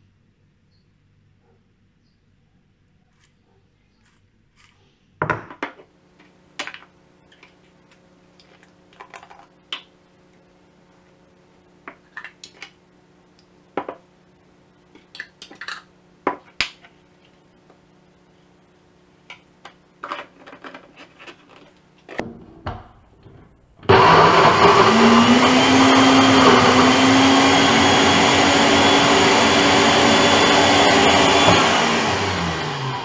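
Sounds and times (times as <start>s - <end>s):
kitchen items clattering: 6.6s - 9.8s, 11.9s - 12.8s, 14.9s - 17.0s, 19.7s - 23.9s.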